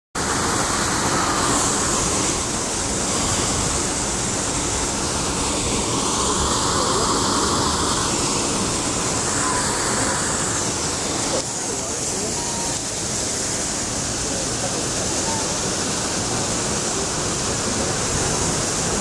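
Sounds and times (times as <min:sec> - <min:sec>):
loud broadband rushing noise: 0:00.2 - 0:19.0.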